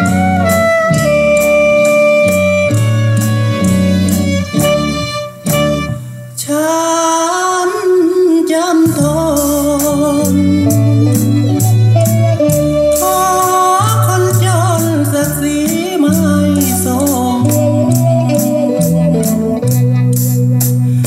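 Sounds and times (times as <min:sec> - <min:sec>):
band with bass notes: 0:00.0 - 0:21.0
person singing wavering melody: 0:12.7 - 0:19.6.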